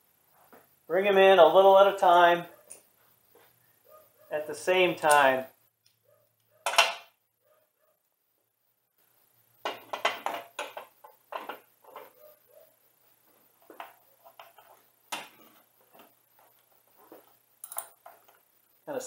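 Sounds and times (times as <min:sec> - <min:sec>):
hand tools clicking on metal: 0:17.6 - 0:18.4.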